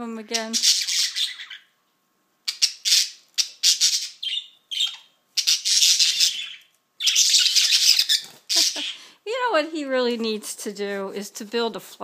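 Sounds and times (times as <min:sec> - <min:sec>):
budgerigars squawking: 0:00.3 - 0:01.7, 0:02.5 - 0:09.1.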